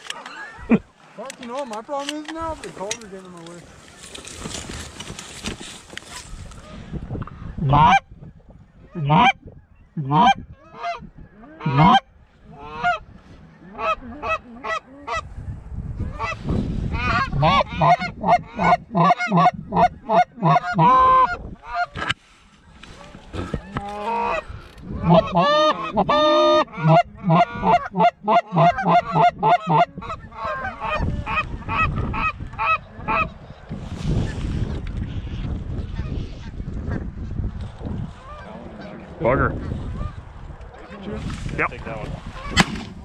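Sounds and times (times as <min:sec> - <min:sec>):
wind rumble: 0:02.4 - 0:43.0
goose honking and clucking: 0:07.6 - 0:08.0, 0:08.9 - 0:15.3, 0:16.0 - 0:22.2, 0:22.9 - 0:33.3, 0:42.3 - 0:42.6.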